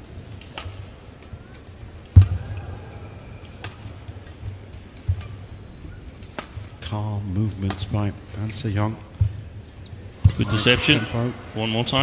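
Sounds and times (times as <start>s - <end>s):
low hum of hall: 0.0s - 12.0s
racket striking shuttlecock: 6.4s - 6.7s.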